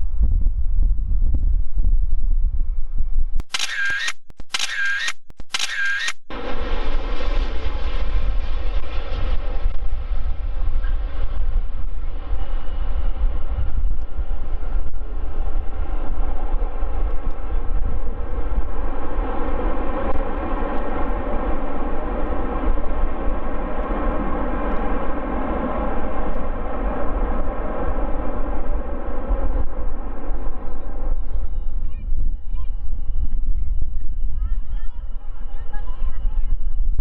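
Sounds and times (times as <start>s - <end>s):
jet engines rolling out: 6.3s - 34.3s.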